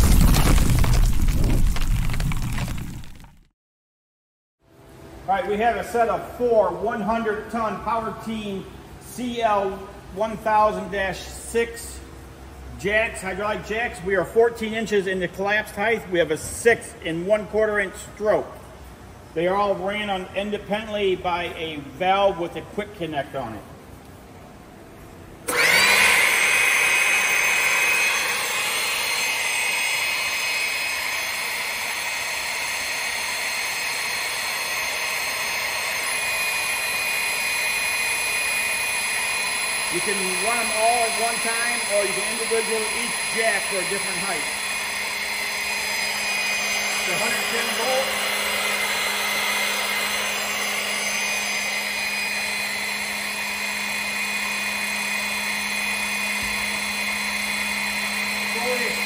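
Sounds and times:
hydraulic power unit whining: 25.1 - 59.0.

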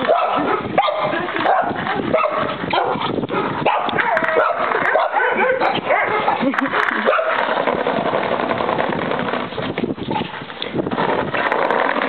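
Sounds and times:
steady rough noise: 6.3 - 12.0.

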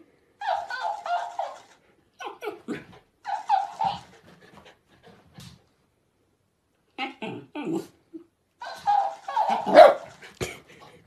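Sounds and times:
talking toy high-pitched voice: 0.4 - 3.9
dog whining and grumbling: 7.0 - 9.8.

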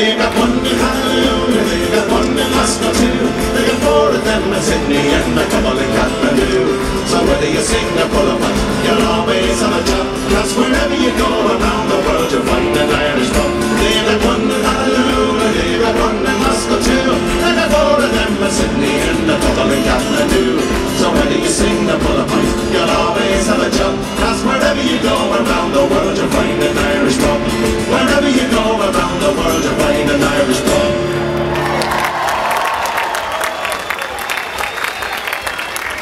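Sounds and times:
folk band playing acoustic guitars: 0.0 - 32.0
audience applause: 30.9 - 36.0.

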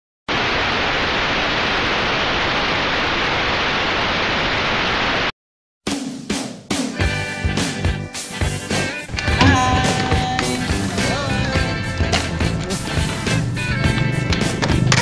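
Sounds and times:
tv static hiss: 0.3 - 5.3
music: 5.9 - 15.0.

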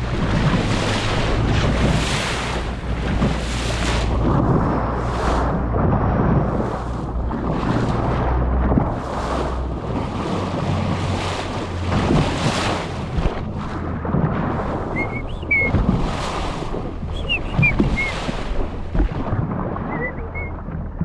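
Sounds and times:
dolphin splash: 0.0 - 21.0
water rushing past boat: 0.0 - 21.0
wind buffeting microphone: 0.0 - 21.0
short high chirps: 17.2 - 18.2.

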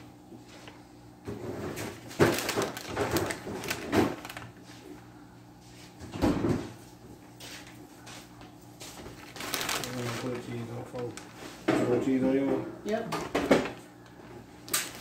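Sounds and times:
faint steady hum: 0.0 - 15.0
plastic bag crinkling: 1.8 - 5.0, 8.9 - 12.2, 14.7 - 15.0.

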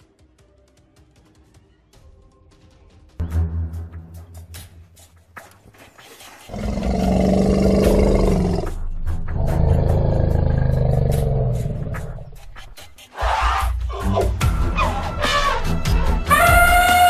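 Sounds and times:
deep animal roars: 6.5 - 12.4.

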